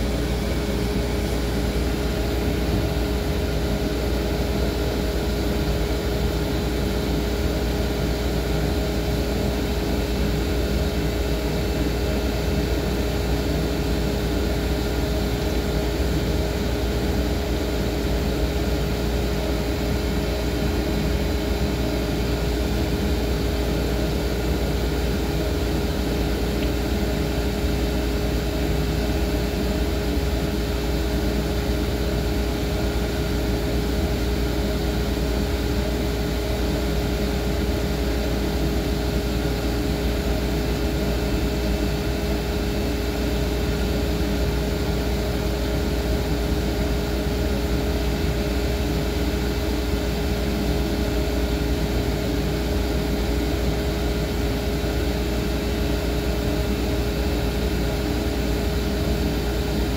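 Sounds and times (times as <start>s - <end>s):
machine hum: 0.0s - 59.9s.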